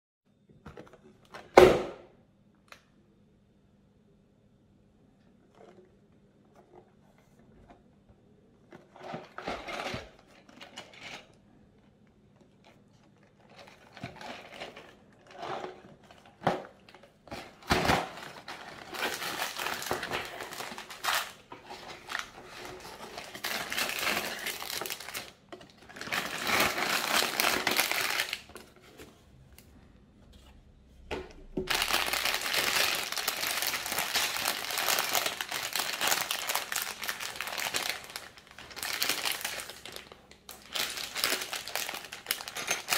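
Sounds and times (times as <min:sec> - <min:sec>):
plastic bags crinkling: 0:13.2 - 0:28.8, 0:31.6 - 0:42.9.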